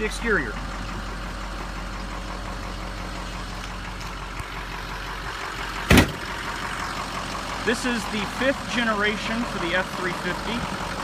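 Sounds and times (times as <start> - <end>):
diesel engine idling: 0.0 - 11.0
car door shutting: 5.9 - 6.2.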